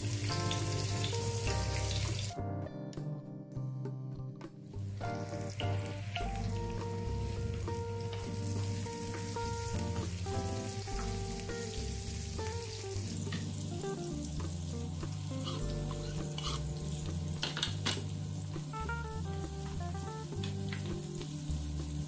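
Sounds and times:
onions sizzling in hot oil: 0:00.0 - 0:02.4, 0:04.9 - 0:22.0
soft background music: 0:00.0 - 0:22.0
wooden spoon scraping a pan: 0:15.2 - 0:18.0.

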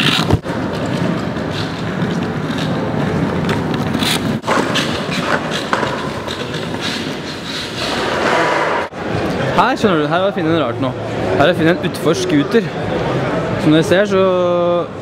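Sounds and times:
skateboard wheels rolling on concrete: 0:00.0 - 0:09.6.

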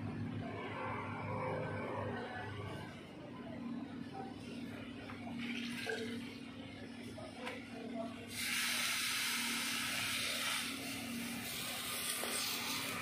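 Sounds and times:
gas hissing from a nozzle: 0:08.3 - 0:13.0.

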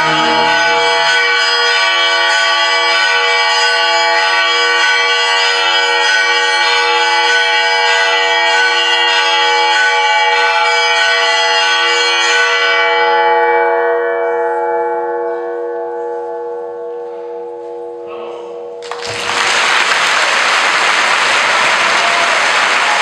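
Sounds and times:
orchestra playing chord: 0:00.0 - 0:01.1
church bells struck: 0:00.0 - 0:19.4.

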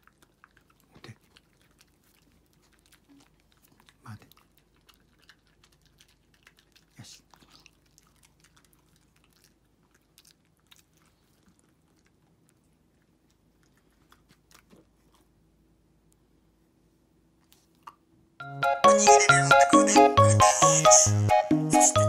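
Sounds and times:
dog chewing a treat: 0:00.0 - 0:15.4.

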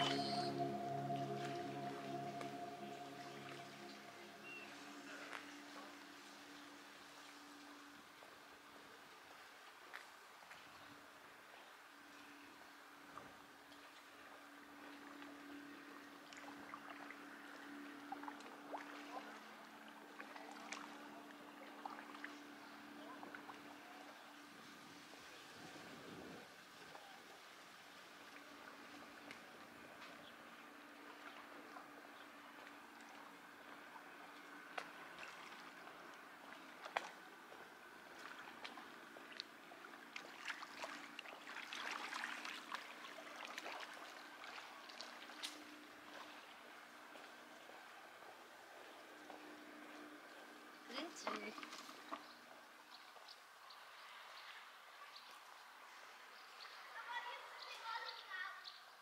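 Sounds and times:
small waves lapping: 0:00.0 - 0:58.6
faint low hum: 0:00.0 - 0:58.9
water lapping against stone shore: 0:31.0 - 0:55.8.

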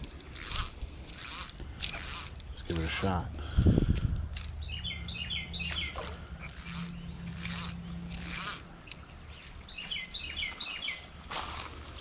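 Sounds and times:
fly line swishing: 0:00.0 - 0:03.2, 0:05.6 - 0:09.6
bird chirping: 0:04.3 - 0:11.2.

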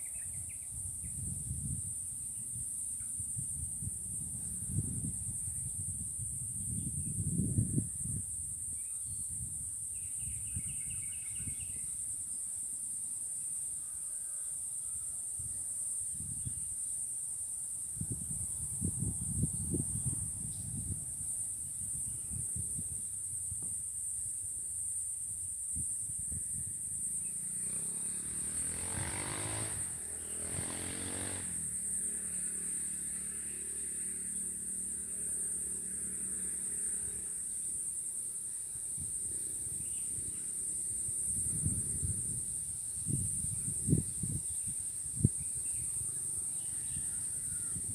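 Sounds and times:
high-pitched insect drone: 0:00.0 - 0:47.9
wind gusts on microphone: 0:00.1 - 0:11.9, 0:15.4 - 0:16.7, 0:17.8 - 0:24.2, 0:40.8 - 0:47.9
engine passing: 0:27.4 - 0:37.5.

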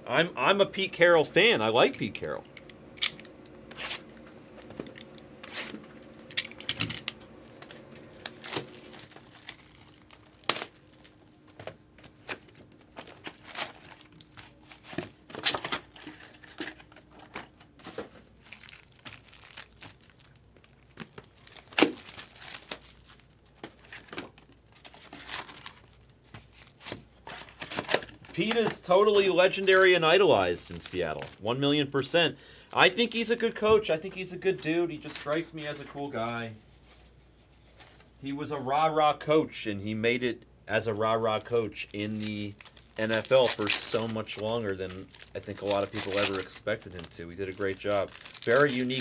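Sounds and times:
wrappers crinkling: 0:03.0 - 0:31.6, 0:40.8 - 0:49.0
wrappers ripping: 0:05.4 - 0:11.2, 0:12.1 - 0:17.0, 0:18.3 - 0:28.6, 0:29.4 - 0:31.4, 0:41.0 - 0:49.0.

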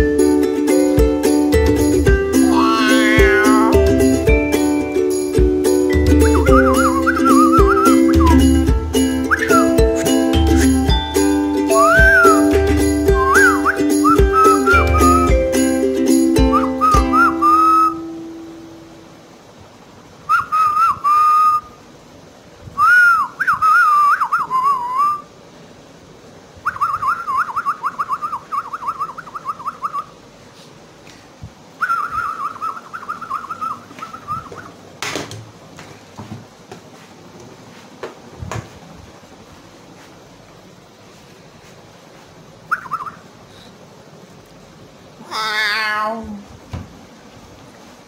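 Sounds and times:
person whistling: 0:02.5 - 0:03.9, 0:06.0 - 0:11.0, 0:11.7 - 0:15.4, 0:16.4 - 0:18.1, 0:22.8 - 0:25.2
soft handling bumps: 0:34.6 - 0:39.2.

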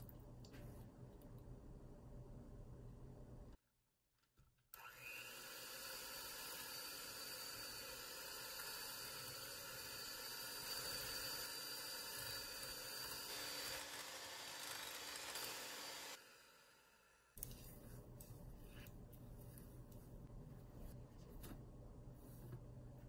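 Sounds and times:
electric hand mixer whisking: 0:04.8 - 0:17.0.

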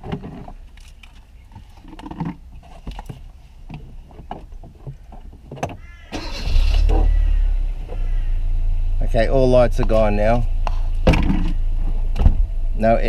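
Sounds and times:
car engine starting and idling: 0:06.1 - 0:13.0.

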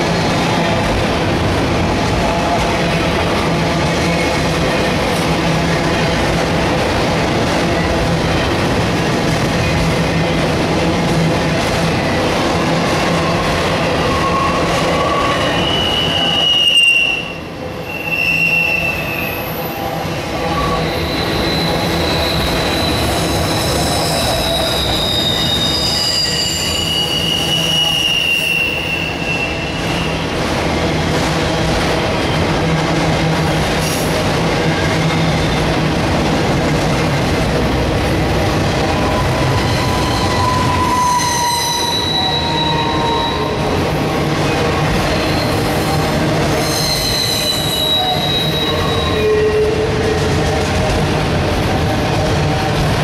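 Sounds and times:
rumble of steel wheels on rail: 0:00.0 - 0:53.0
high-pitched wheel squeals: 0:14.0 - 0:19.8, 0:20.5 - 0:30.2, 0:38.9 - 0:43.6, 0:46.6 - 0:49.9.

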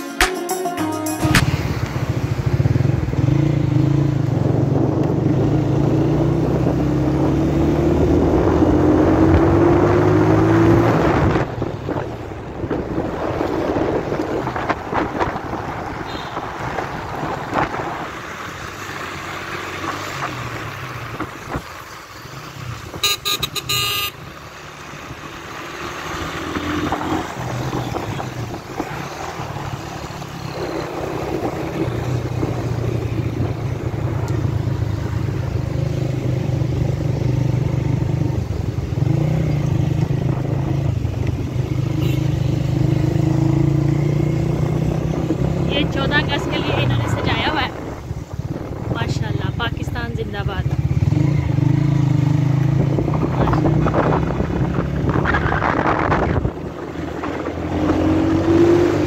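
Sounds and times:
road traffic noise: 0:00.0 - 0:59.0
vehicle engine accelerating: 0:01.3 - 0:23.1, 0:24.2 - 0:59.0
short high horn toot: 0:23.0 - 0:24.2.

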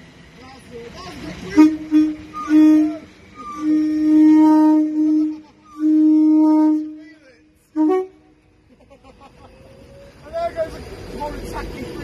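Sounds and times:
train horn blasts: 0:01.4 - 0:08.4.

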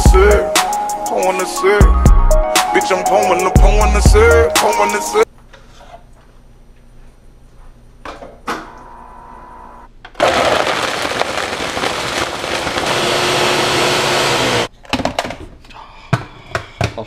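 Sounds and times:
blender running: 0:10.2 - 0:14.7.

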